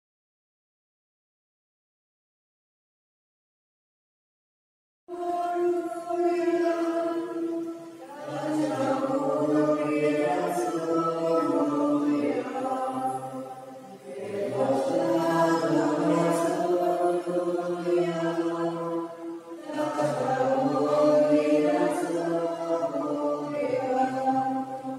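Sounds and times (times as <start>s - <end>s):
voices singing a slow chant: 5.1s - 24.9s.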